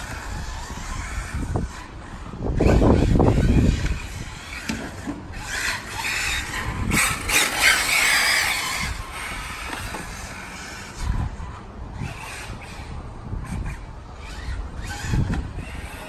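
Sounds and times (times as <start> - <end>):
tyres scrubbing on asphalt: 0.0 - 12.9
electric motor whining: 0.0 - 16.0.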